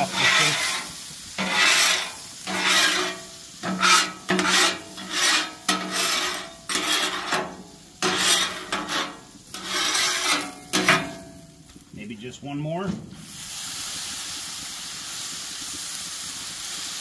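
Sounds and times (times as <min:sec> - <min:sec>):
scraper scraping metal griddle: 0:00.0 - 0:11.4.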